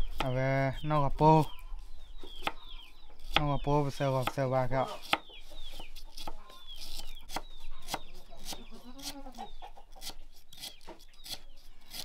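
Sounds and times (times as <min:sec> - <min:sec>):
chicks peeping: 0:00.0 - 0:12.0
chicken clucking: 0:07.7 - 0:10.2.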